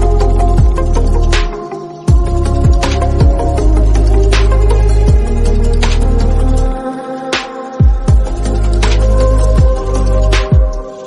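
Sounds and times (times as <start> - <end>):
deep sustained bass: 0.0 - 1.4, 2.1 - 6.8, 8.1 - 10.6
electronic music: 0.0 - 11.0
kick drum: 0.6 - 0.8, 2.1 - 3.6, 5.1 - 5.4, 7.8 - 8.4, 9.6 - 10.9.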